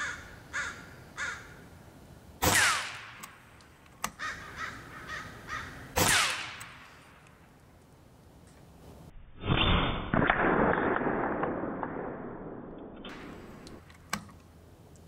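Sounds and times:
crows cawing: 0.0 - 1.6, 4.1 - 6.0
air rifle shots: 2.4 - 4.2, 5.9 - 7.2, 9.6 - 12.5
sharp click: 2.6 - 4.2.

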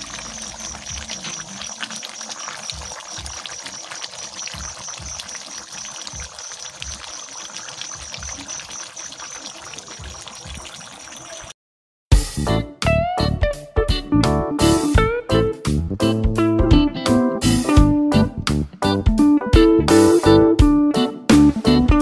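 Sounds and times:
stew bubbling and sizzling: 0.0 - 11.6.

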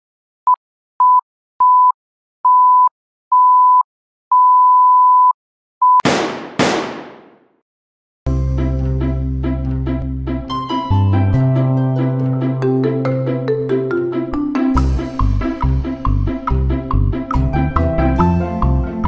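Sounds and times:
music: 8.3 - 19.0.

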